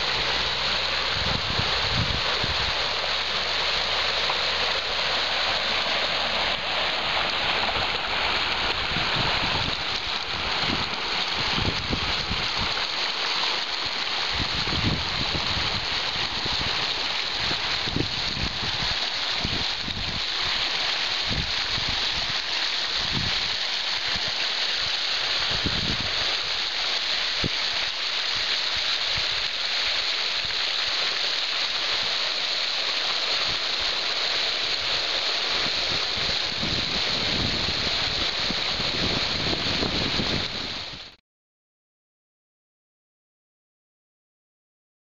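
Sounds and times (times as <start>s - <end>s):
water rushing over barrier: 0.0s - 41.2s
wind buffeting microphone: 1.1s - 2.8s, 7.7s - 12.7s, 14.3s - 16.8s, 17.4s - 20.2s, 21.3s - 22.3s, 23.0s - 23.5s, 25.5s - 26.2s, 35.6s - 41.0s.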